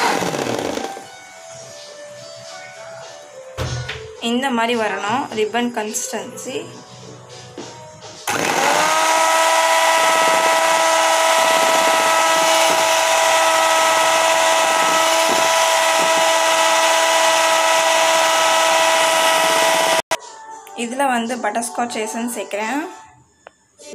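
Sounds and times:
electric hand mixer whining: 0.0s - 1.1s, 8.3s - 20.2s.

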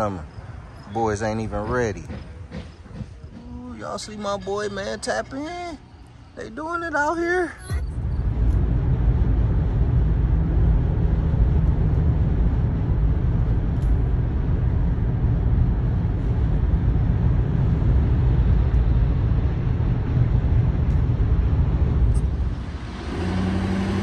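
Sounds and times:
car road and wind noise: 7.7s - 24.0s.

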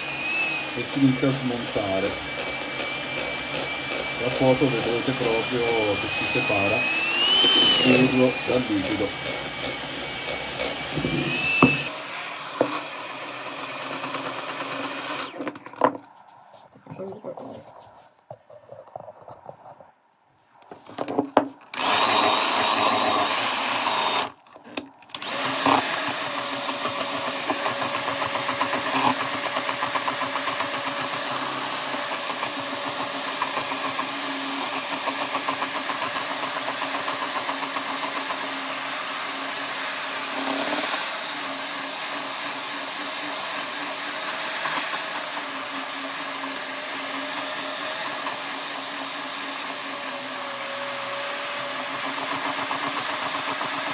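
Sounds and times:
electric mixer whining: 0.0s - 16.0s, 21.1s - 53.9s.

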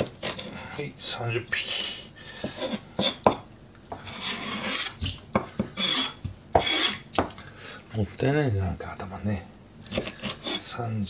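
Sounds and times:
knife scraping on cutting board: 0.0s - 0.7s, 2.4s - 7.3s, 9.8s - 10.8s.

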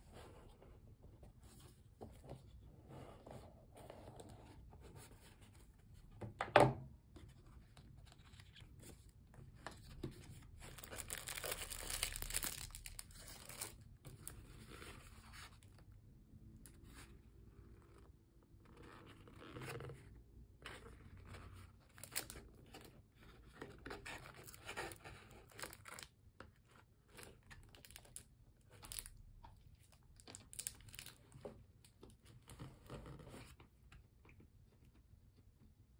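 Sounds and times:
paper and card rustling: 7.7s - 15.7s.

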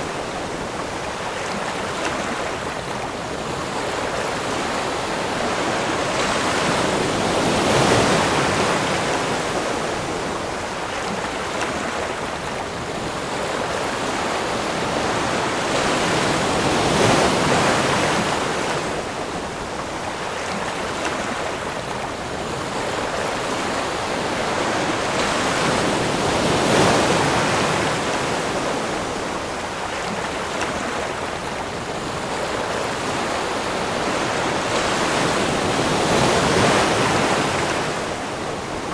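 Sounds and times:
ocean waves breaking: 0.0s - 38.9s.

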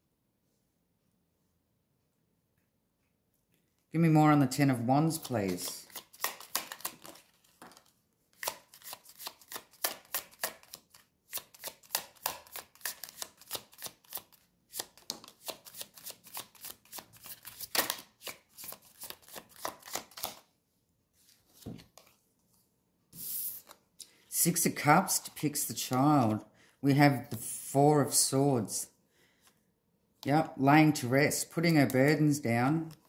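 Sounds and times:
cards being shuffled: 5.0s - 20.5s, 21.2s - 22.6s, 23.2s - 24.2s.

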